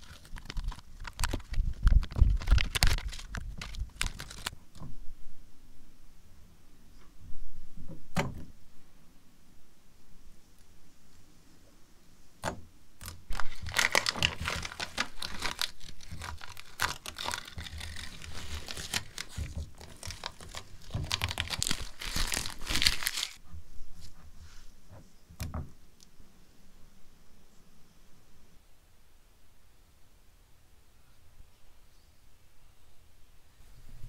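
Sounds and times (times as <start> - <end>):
tape and paper crinkling and tearing: 0.0 - 4.6, 13.0 - 23.4.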